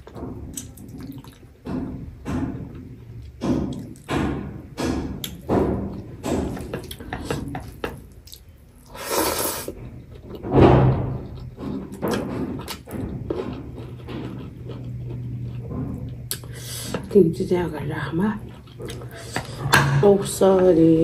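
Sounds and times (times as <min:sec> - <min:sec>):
wet chewing and lip-smacking: 0:00.0 - 0:01.6, 0:06.6 - 0:09.0, 0:11.1 - 0:17.1, 0:18.4 - 0:19.7.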